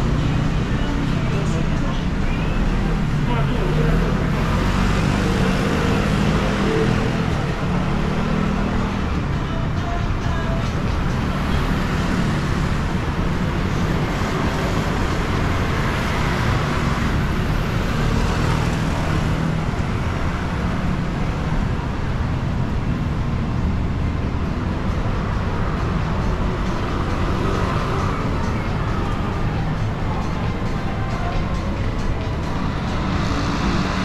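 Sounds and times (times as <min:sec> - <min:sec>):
city road traffic: 0:00.0 - 0:34.0.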